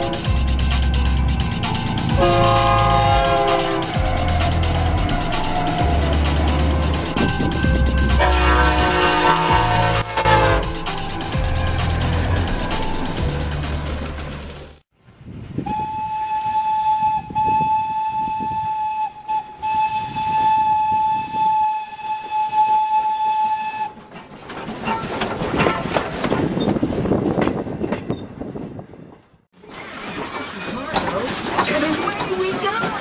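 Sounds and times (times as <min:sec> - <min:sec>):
steam locomotive whistle: 0:00.0 - 0:00.4, 0:01.4 - 0:07.3, 0:08.0 - 0:11.0, 0:15.6 - 0:24.1
hissing of moving train: 0:00.0 - 0:33.0.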